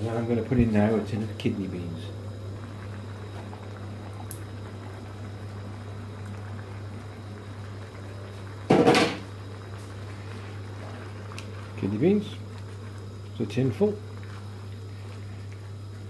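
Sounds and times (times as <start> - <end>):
sauce bubbling in a pan: 1.5 - 16.0.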